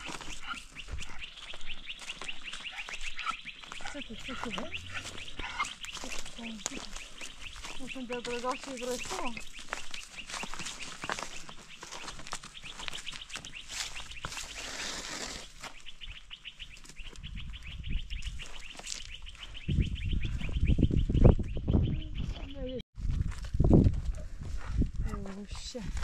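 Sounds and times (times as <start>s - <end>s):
small birds chirping: 0.0s - 22.8s.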